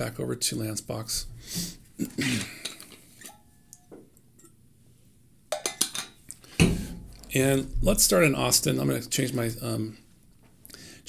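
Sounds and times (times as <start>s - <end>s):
drink container clinks and knocks: 5.5s - 6.2s.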